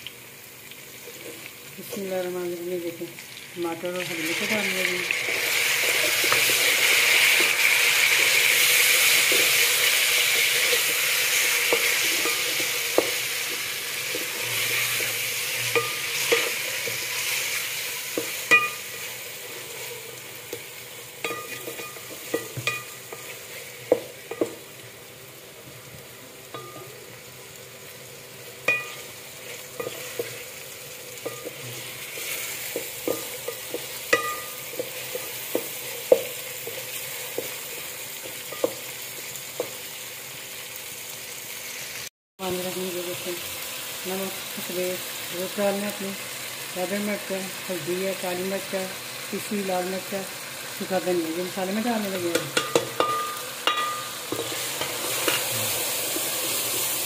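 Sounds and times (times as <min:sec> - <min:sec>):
vegetables sizzling in hot fat: 0:00.0 - 0:57.0.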